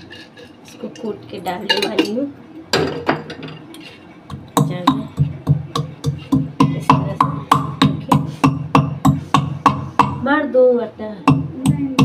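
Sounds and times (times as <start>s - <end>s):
metal pestle pounding in mortar: 4.3s - 10.3s, 11.3s - 12.0s.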